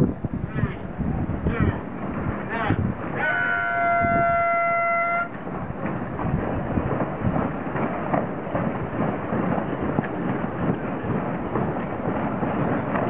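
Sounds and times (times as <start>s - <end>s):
wind and water rushing: 0.0s - 13.0s
horn blast: 3.2s - 5.4s.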